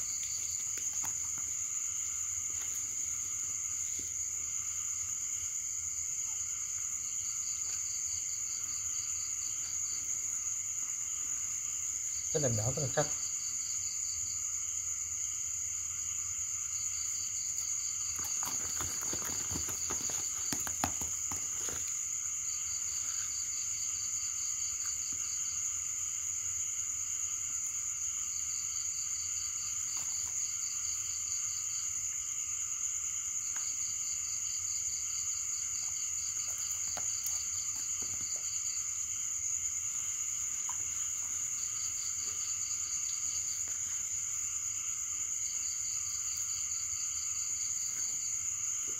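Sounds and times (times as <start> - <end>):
high-pitched insect trill: 0.0 - 48.9
cloth sack rustling: 18.2 - 22.0.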